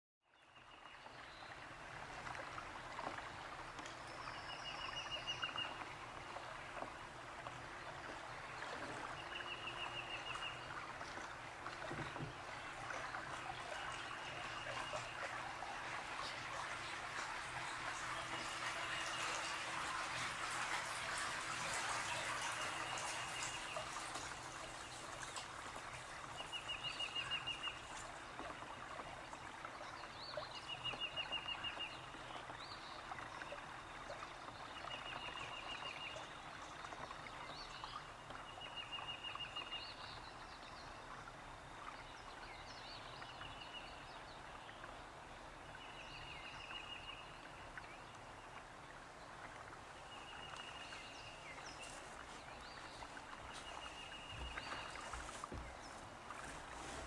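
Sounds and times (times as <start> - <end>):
lapping water: 1.0 - 57.0.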